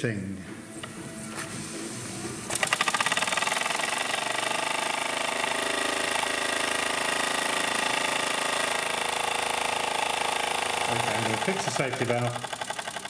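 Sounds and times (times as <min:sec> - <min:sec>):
steam engine exhaust beats: 0:00.0 - 0:13.0
steam hiss: 0:00.6 - 0:04.0
flywheel flicked by hand: 0:02.5 - 0:13.0.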